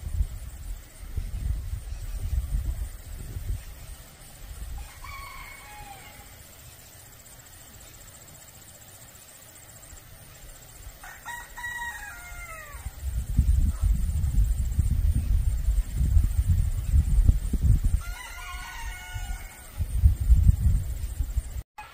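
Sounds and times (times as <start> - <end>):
rooster crowing: 4.8 - 6.5, 11.0 - 13.0, 18.0 - 19.9.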